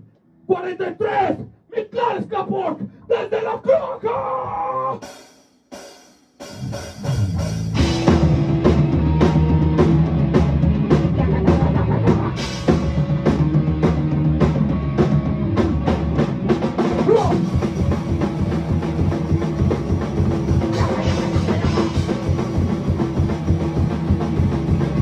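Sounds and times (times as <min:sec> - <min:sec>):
drum kit: 0:04.4 - 0:25.0
live band playing: 0:06.4 - 0:25.0
electric guitar: 0:07.0 - 0:25.0.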